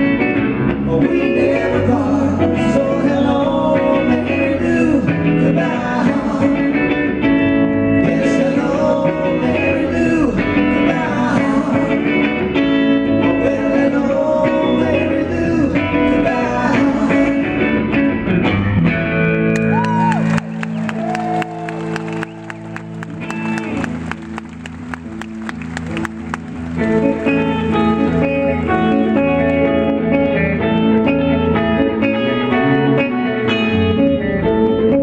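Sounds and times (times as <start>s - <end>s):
bass guitar: 0.0s - 35.0s
electric guitar: 0.0s - 35.0s
men singing: 0.7s - 18.1s
audience clapping: 19.5s - 28.8s.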